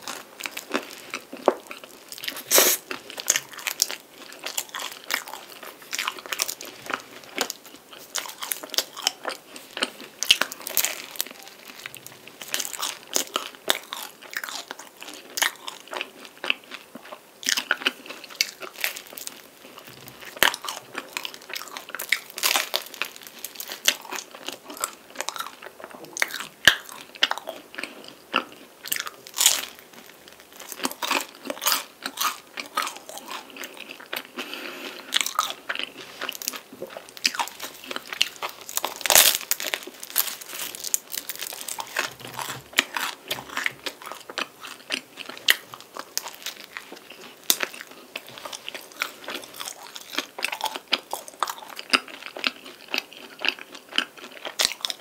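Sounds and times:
chewing: 0:00.0 - 0:55.0
pastry crunching: 0:00.0 - 0:55.0.

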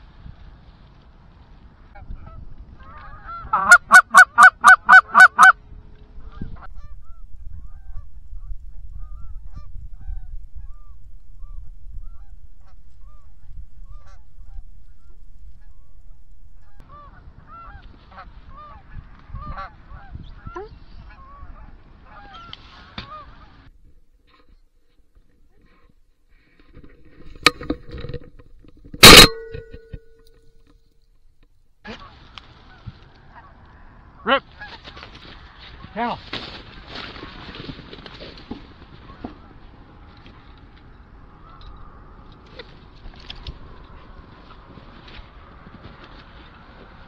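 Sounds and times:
wind noise: 0:00.0 - 0:24.0, 0:34.6 - 0:47.0
geese honking: 0:01.9 - 0:05.6, 0:09.0 - 0:20.1, 0:29.0 - 0:29.4
goose call clucks: 0:01.9 - 0:05.6, 0:29.0 - 0:29.6.

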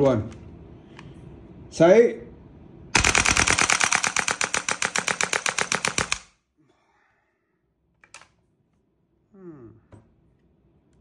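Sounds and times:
airsoft rifle full-auto firing: 0:03.0 - 0:06.4.

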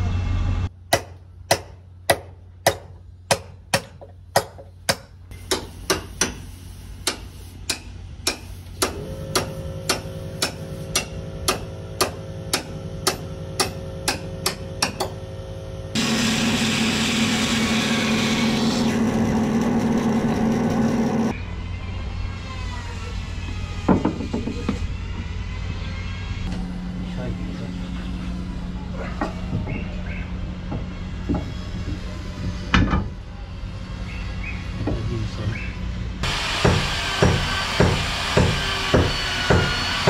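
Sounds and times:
power tool running: 0:08.6 - 0:29.5, 0:36.2 - 0:40.0
hammer blows: 0:36.2 - 0:40.0.

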